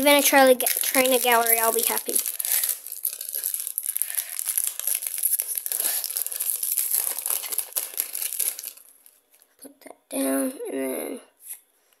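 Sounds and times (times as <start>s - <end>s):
foil wrapper crinkling and tearing: 0.0s - 9.2s.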